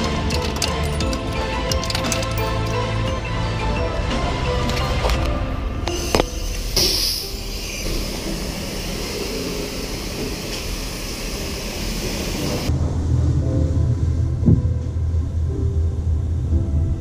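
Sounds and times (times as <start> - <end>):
pressure washer spraying water: 5.9 - 12.7.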